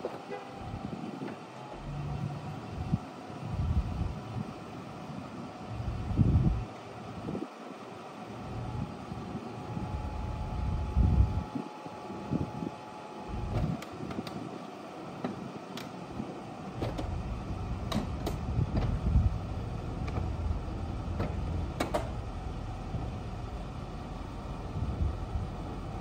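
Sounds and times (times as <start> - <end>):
convertible top motor running: 0.0 - 26.0
top frame clicks and clunks: 16.8 - 17.2, 17.8 - 19.0, 21.1 - 22.2.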